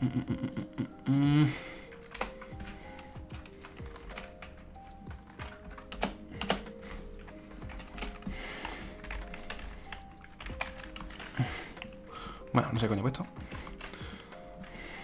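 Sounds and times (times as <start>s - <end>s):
keyboard keystroke clicks: 1.9s - 8.3s.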